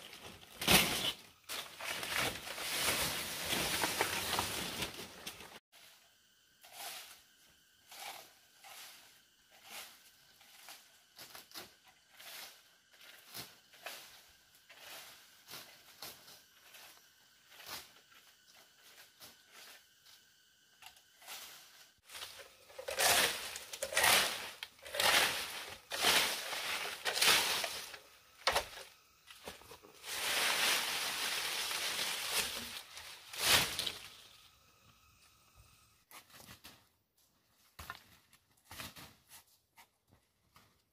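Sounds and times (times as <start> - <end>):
dry leaves and branches rustling: 0.0 - 5.6, 21.2 - 34.5.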